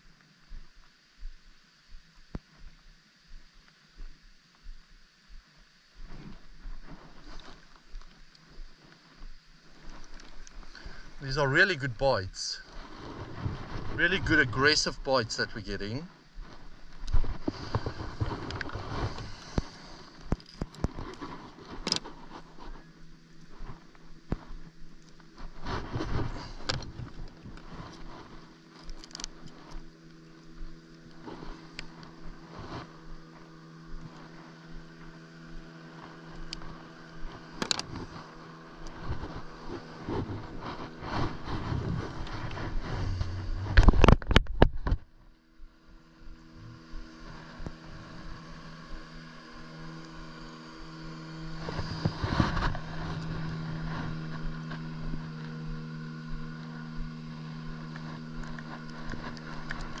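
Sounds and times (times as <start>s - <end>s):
motorboat engine humming: 0.0s - 60.0s.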